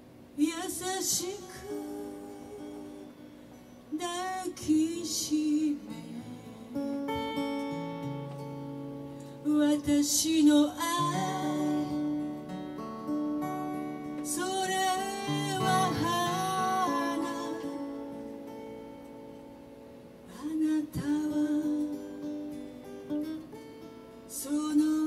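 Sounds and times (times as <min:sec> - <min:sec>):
acoustic guitar: 0:00.0 - 0:25.0
woman singing: 0:00.4 - 0:03.2, 0:03.9 - 0:07.7, 0:09.2 - 0:12.6, 0:14.2 - 0:18.4, 0:20.3 - 0:22.3, 0:24.3 - 0:25.0.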